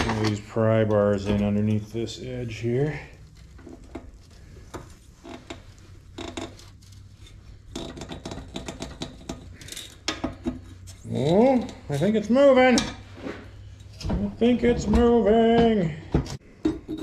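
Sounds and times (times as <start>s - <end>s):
metal clicks and scrapes: 6.2s - 12.2s.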